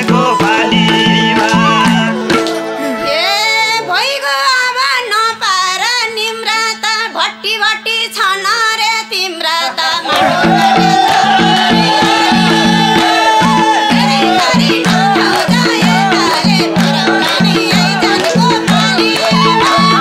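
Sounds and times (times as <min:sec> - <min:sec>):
hand drums and band playing: 0:00.0 - 0:03.0, 0:10.1 - 0:20.0
woman singing folk solo: 0:11.0 - 0:20.0.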